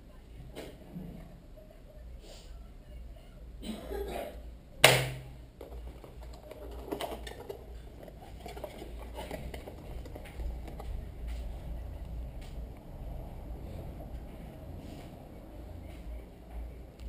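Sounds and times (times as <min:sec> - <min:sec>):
sharp knock: 0:04.8 - 0:05.4.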